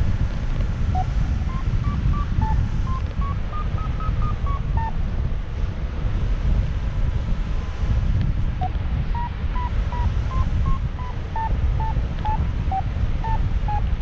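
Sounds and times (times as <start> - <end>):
wind buffeting microphone: 0.0 - 14.0
variometer beeping: 0.9 - 5.0, 8.6 - 14.0.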